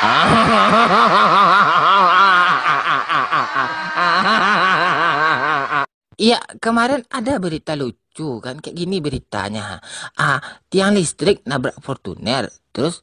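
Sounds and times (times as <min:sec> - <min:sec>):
man laughing: 0:00.0 - 0:05.9.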